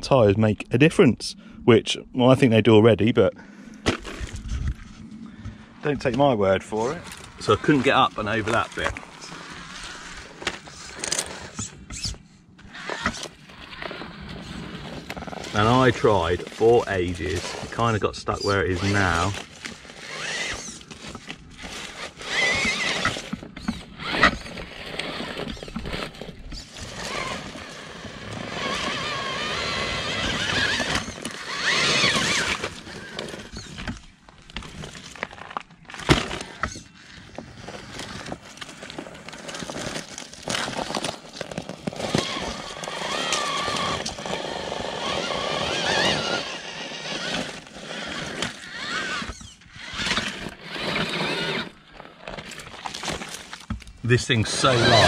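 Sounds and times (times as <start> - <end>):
rc car motor whining: 6.4 - 53.6, 54.3 - 55.0.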